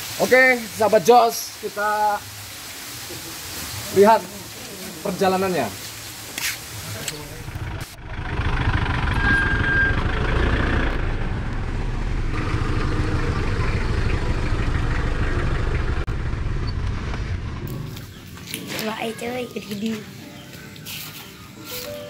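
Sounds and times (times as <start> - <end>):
pickup trucks driving past: 7.2 - 18.4
motor scooter passing: 7.3 - 19.1.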